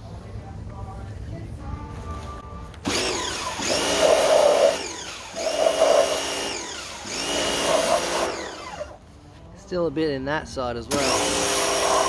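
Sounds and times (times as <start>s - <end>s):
pressure washer motor whine: 2.8s - 9.0s, 10.9s - 12.0s.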